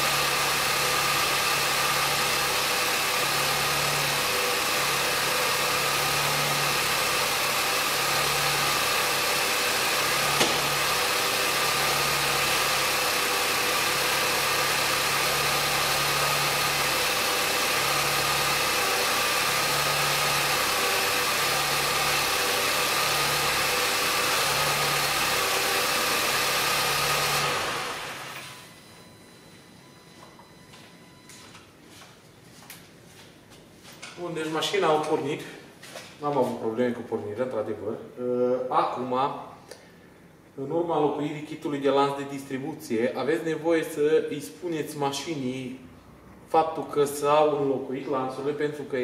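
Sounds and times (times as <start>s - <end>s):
car engine running: 0.0s - 28.5s.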